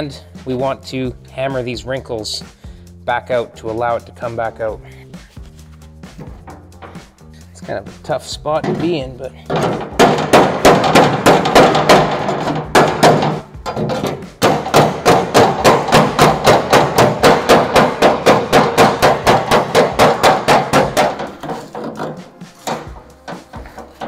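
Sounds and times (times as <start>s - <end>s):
hammer striking sheet metal: 6.1s - 7.2s, 8.5s - 24.0s.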